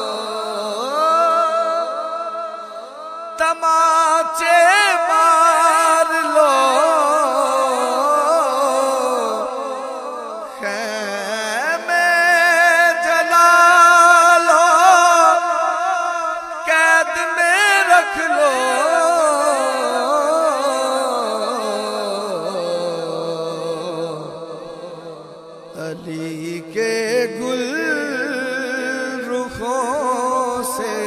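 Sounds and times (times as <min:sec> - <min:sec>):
person singing ornamented passage: 0:00.0 - 0:31.0.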